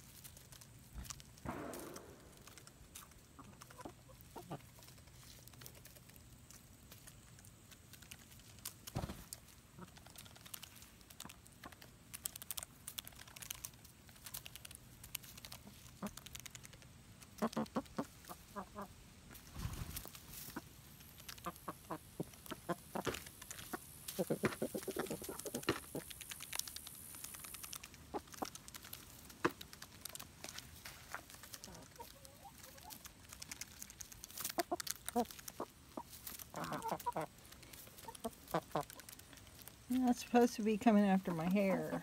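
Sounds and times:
hens clucking: 1.0s - 6.6s, 15.4s - 19.0s, 19.6s - 29.7s, 30.5s - 40.4s.

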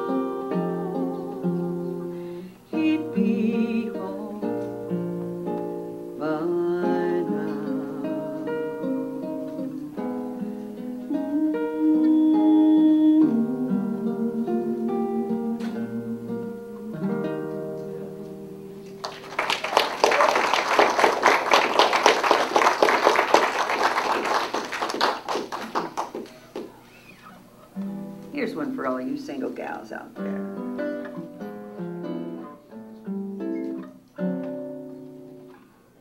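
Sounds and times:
acoustic guitar ballad: 0.0s - 19.6s, 26.4s - 36.0s
audience applauding: 19.0s - 26.8s.

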